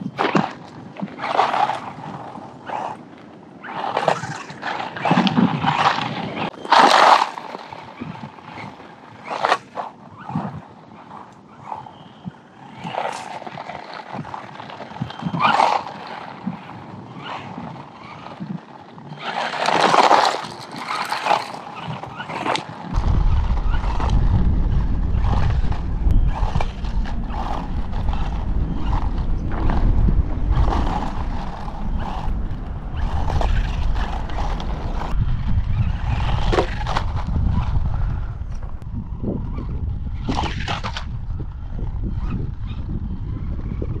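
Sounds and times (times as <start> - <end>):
toy truck tyres crunching gravel: 0.0 - 44.0
low rumble: 22.9 - 44.0.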